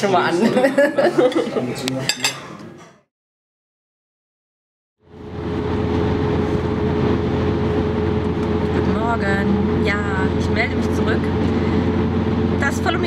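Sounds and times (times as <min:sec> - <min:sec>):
dishes and cutlery clattering: 0:02.1 - 0:03.1
constant hum: 0:05.1 - 0:13.0.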